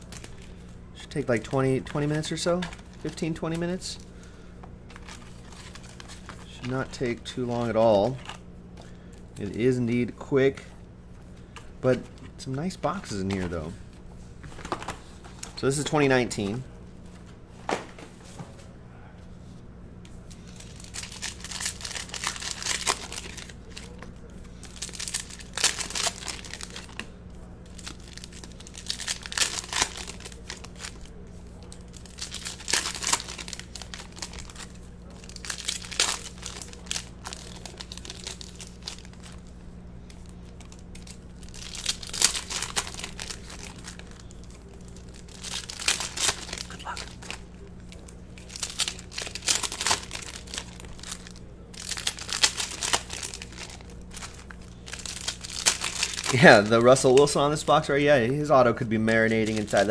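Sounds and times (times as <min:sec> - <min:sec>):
foil wrappers tearing and crinkling: 0:00.0 - 0:09.6, 0:20.4 - 0:39.5, 0:40.1 - 0:59.9
steady low hum: 0:00.0 - 0:59.9.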